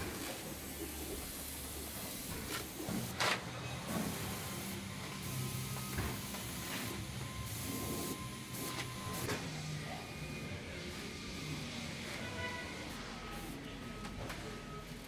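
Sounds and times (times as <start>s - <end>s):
spray wand hissing: 0.1s - 3.1s.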